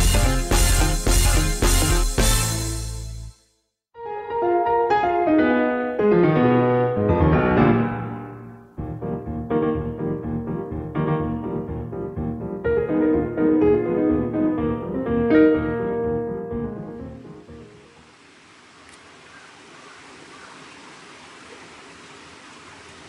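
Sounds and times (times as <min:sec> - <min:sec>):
keyboard background music: 0:00.0 - 0:03.4, 0:04.0 - 0:17.8.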